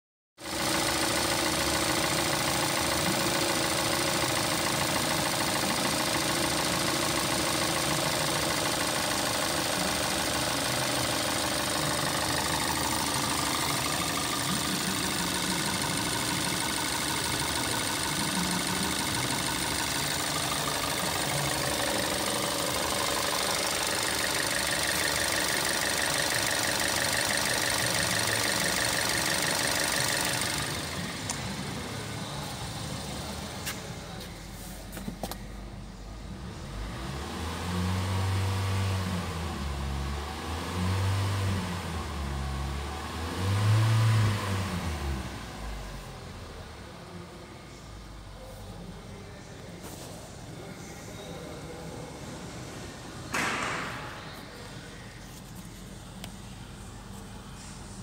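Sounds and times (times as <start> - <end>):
car engine idling: 0.4 - 36.9, 44.5 - 58.0.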